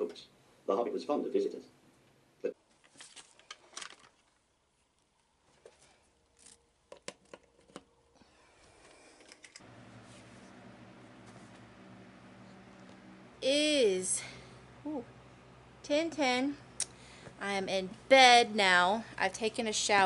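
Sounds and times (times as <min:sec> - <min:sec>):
steady low hum: 0:09.6 - 0:20.0.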